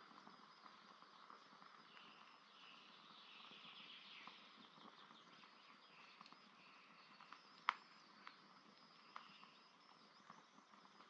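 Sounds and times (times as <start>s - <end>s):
campfire crackling: 0.0s - 11.0s
faint bird chirps: 0.0s - 11.0s.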